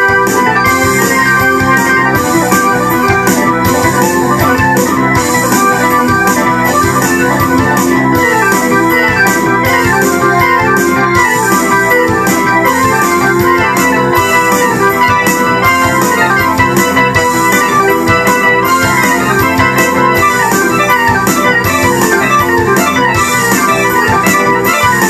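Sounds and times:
rock synthesizer keyboard part: 0:00.0 - 0:25.0
steady beat of sharp hits: 0:00.0 - 0:25.0.

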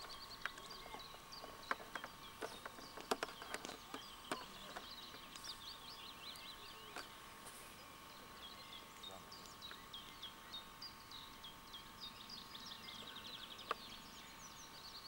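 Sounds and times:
sharp clicks: 0:00.0 - 0:05.5
small songbirds chirping: 0:00.0 - 0:15.0.

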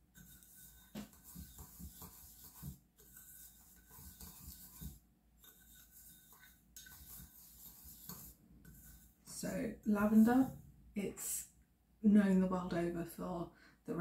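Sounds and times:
spoon scraping salts in a bowl: 0:00.0 - 0:10.6.

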